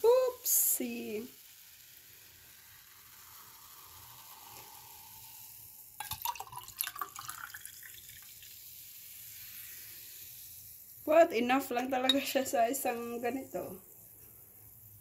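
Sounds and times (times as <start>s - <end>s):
soda splashing into glass: 0.0s - 13.5s
soda fizzing: 0.0s - 15.0s.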